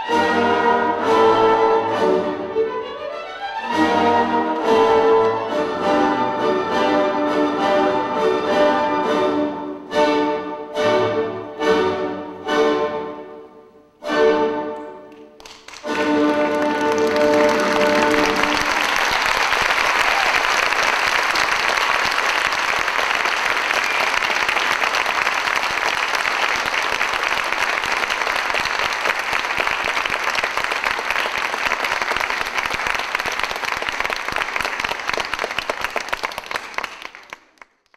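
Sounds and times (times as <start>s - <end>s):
orchestral music: 0.0s - 33.5s
audience applauding: 15.1s - 37.9s.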